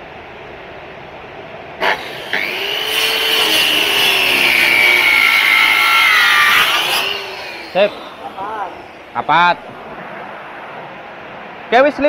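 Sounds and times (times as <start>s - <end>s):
circular saw cutting wood: 1.8s - 9.8s.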